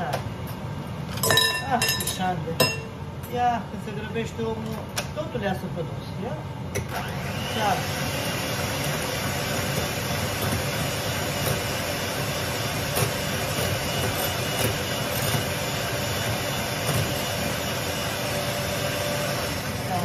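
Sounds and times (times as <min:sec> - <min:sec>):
electric hand mixer whisking: 0:06.9 - 0:20.0.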